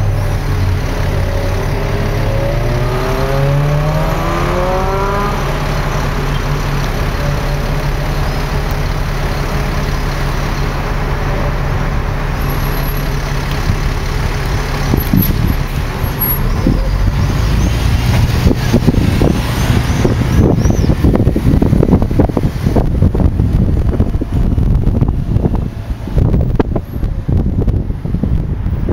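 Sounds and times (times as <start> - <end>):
bus engine humming: 0.0 - 28.9
road noise: 0.0 - 28.9
wind buffeting microphone: 13.6 - 28.9.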